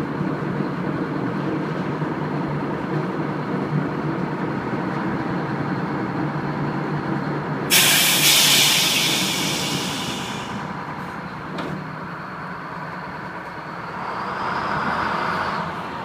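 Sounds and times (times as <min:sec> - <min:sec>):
diesel engine droning: 0:00.0 - 0:16.0
loud hiss: 0:07.7 - 0:10.7.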